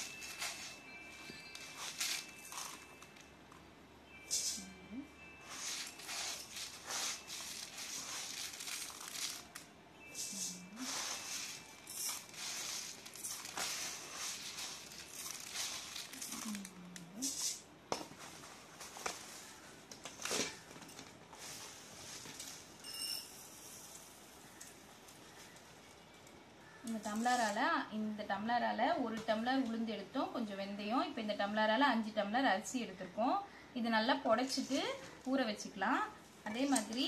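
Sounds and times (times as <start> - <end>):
rice grains rustling: 5.4 - 17.6.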